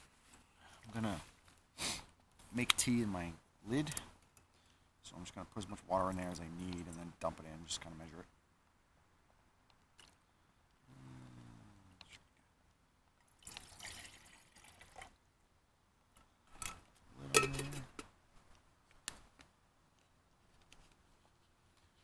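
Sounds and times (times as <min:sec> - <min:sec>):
water pouring into metal lid: 0:13.4 - 0:15.1
metal lid clinks and clicks: 0:16.6 - 0:18.1.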